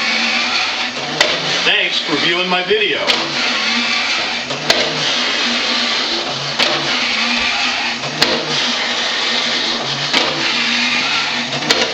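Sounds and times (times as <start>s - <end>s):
toy motor and gears whirring: 0.0s - 11.9s.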